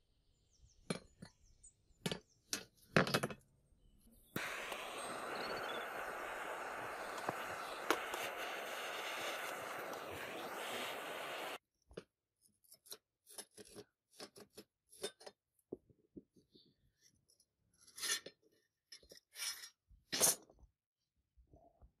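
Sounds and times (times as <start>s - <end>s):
gas torch hissing: 4.4s - 11.6s.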